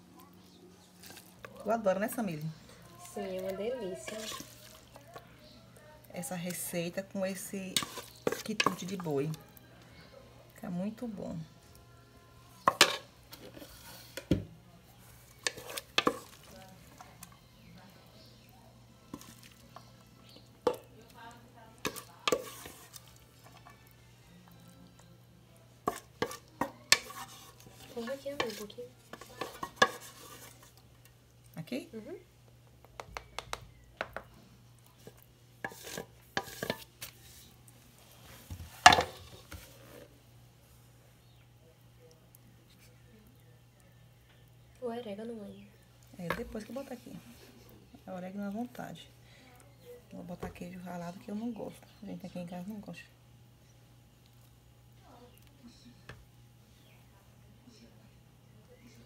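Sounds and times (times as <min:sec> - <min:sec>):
spoon soft scraping: 0:03.9 - 0:05.6, 0:07.4 - 0:09.0, 0:12.3 - 0:14.3, 0:14.9 - 0:18.3, 0:21.8 - 0:24.0, 0:25.9 - 0:30.9, 0:34.8 - 0:40.2.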